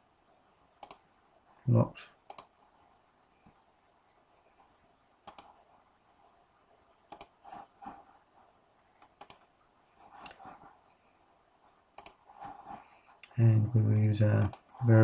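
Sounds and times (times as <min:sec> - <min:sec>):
mouse and keyboard clicks: 0:00.8 - 0:01.0, 0:02.3 - 0:02.5, 0:05.2 - 0:05.6, 0:07.1 - 0:07.4, 0:09.0 - 0:10.4, 0:12.0 - 0:12.3, 0:14.0 - 0:14.7.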